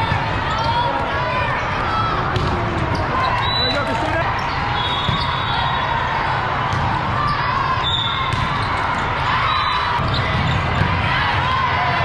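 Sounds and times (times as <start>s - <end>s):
murmur of crowd chatter: 0.0s - 12.0s
volleyball contacts and bounces: 2.2s - 4.2s, 6.6s - 7.1s, 8.0s - 9.2s, 9.9s - 12.0s
referee whistles: 3.2s - 3.9s, 4.8s - 5.9s, 7.8s - 8.3s.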